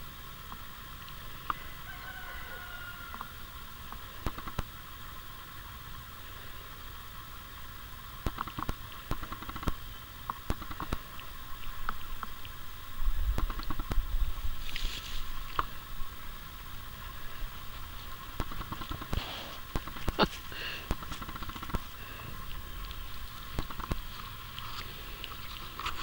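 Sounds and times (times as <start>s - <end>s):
short rustling hiss: 13.4s - 16.2s, 16.8s - 26.0s.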